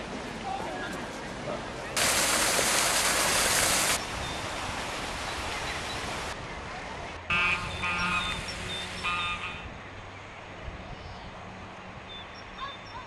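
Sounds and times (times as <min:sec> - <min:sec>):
water rushing over a stone weir: 0:02.0 - 0:06.4.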